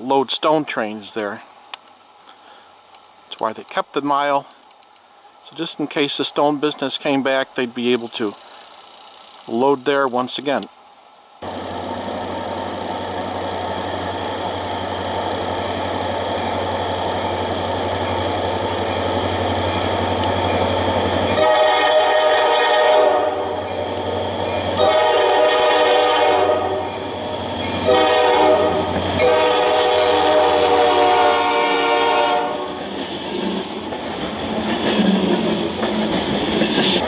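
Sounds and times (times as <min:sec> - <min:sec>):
diesel locomotive engine rumble: 0:00.0 - 0:37.0
train air horn blasts: 0:21.4 - 0:23.8, 0:24.8 - 0:27.0, 0:27.8 - 0:32.8.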